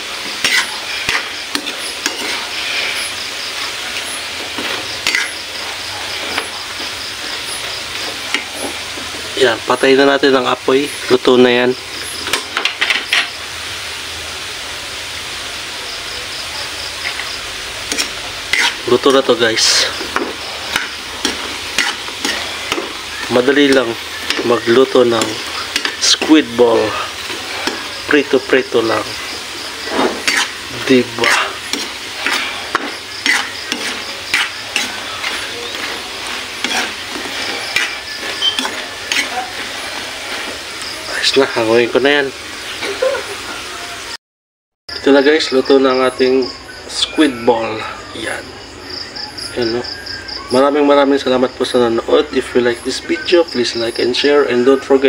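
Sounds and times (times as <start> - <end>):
food deep-frying in oil: 0.0 - 44.2, 44.9 - 55.0
metal spatula scraping pan: 0.2 - 9.2, 17.0 - 40.9.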